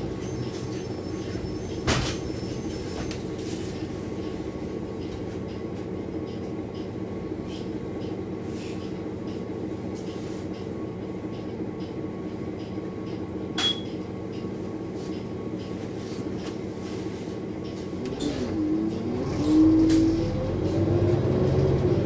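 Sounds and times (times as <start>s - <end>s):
bus engine running: 0.0s - 22.0s
short high ding: 13.6s - 13.9s.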